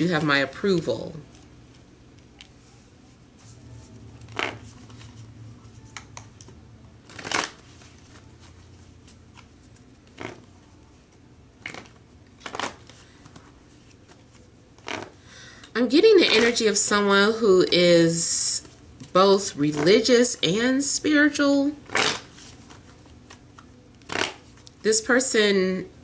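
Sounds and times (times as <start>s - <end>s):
cards shuffled by hand: 7.0s - 15.2s.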